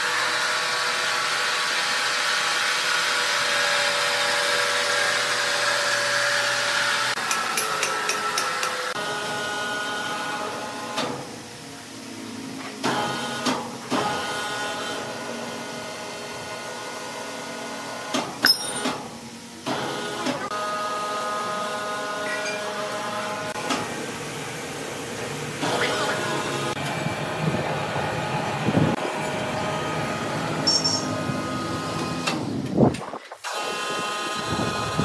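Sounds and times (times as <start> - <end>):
sharp metallic clanks: 18.4 - 18.9.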